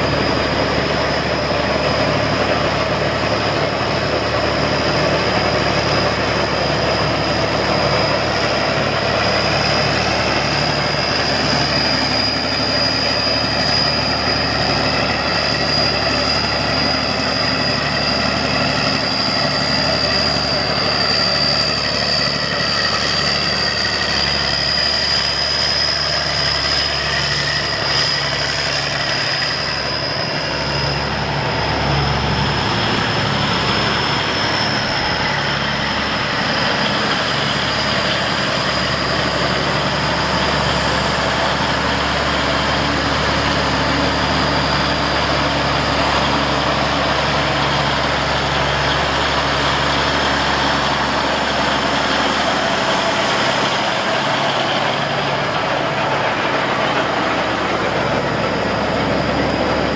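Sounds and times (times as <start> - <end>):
diesel tractor engine running: 0.0 - 59.9
high-pitched whine: 0.0 - 59.9.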